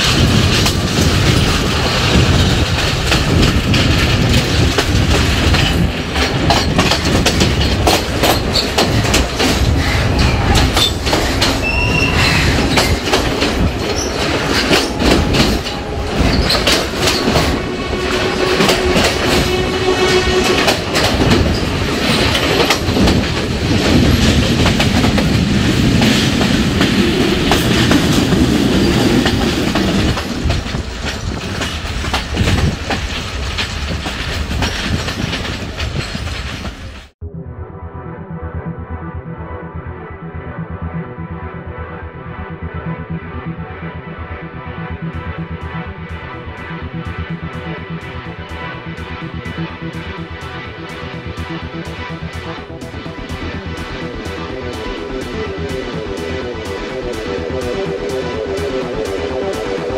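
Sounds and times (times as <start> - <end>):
train wheels clattering on rails: 0.0 - 37.2, 50.8 - 59.9
high wheel squeals: 9.7 - 21.8.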